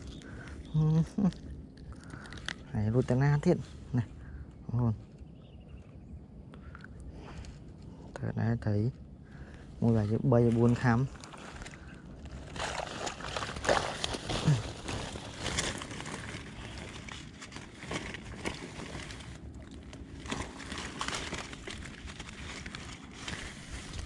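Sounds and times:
boots sloshing through water and grass: 10.4 - 24.0.

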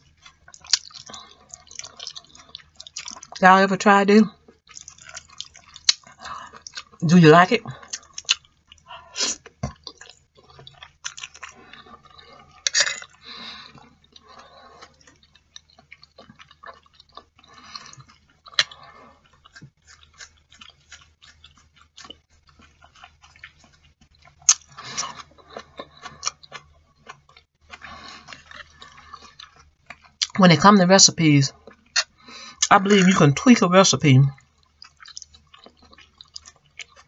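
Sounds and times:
chewing mouth sounds: 0.0 - 3.4, 4.3 - 7.0, 7.6 - 30.4, 31.5 - 32.8, 34.3 - 37.0.

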